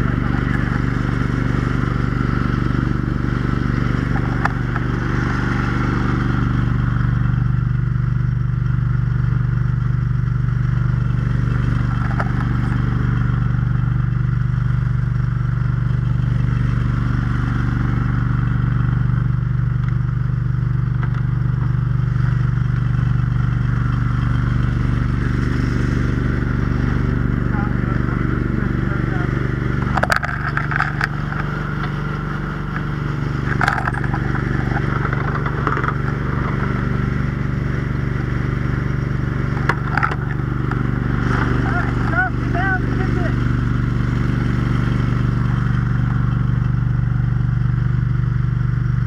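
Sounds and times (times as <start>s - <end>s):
fire pump engine droning: 0.0s - 49.0s
faint clicks and clatters: 29.8s - 32.0s, 32.7s - 36.7s, 39.6s - 40.8s.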